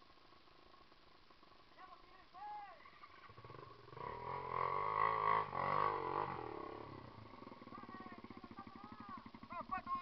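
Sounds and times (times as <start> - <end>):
dirt bike engine revving: 2.9 - 10.0.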